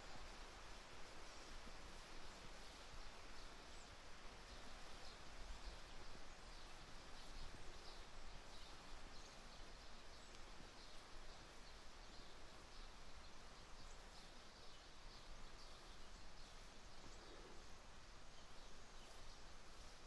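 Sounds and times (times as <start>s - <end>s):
steady background hiss: 0.0s - 20.0s.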